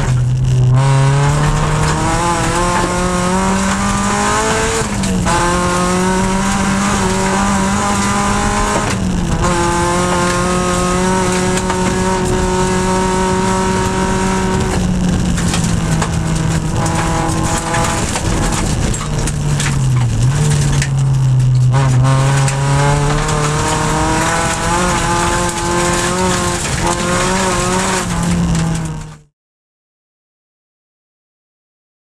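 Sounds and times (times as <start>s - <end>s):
car engine at high revs: 0.0s - 29.3s
gravel clattering against car: 0.0s - 29.3s.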